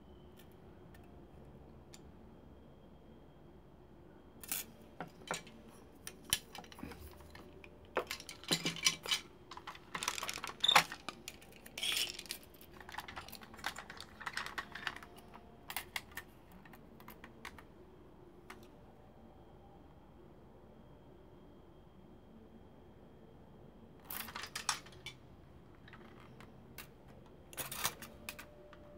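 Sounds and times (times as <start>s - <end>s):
plastic toy parts clicking: 6.1s - 17.6s, 24.1s - 25.2s.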